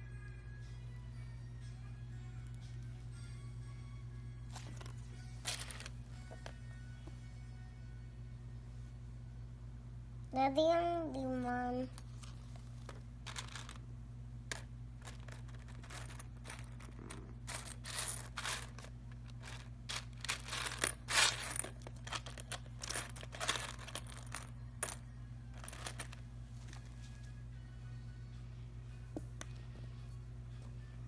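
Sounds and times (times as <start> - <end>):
plastic pieces clattering in a box: 5.5 - 5.9, 13.3 - 13.8, 15.0 - 24.5.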